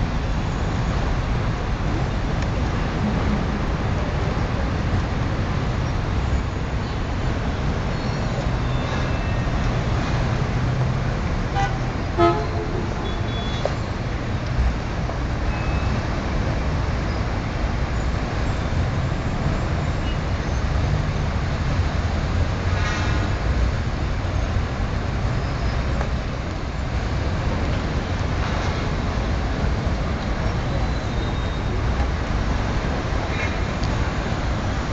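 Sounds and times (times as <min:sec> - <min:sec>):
heavy city traffic: 0:00.0 - 0:34.9
car horn toot: 0:11.6 - 0:13.7.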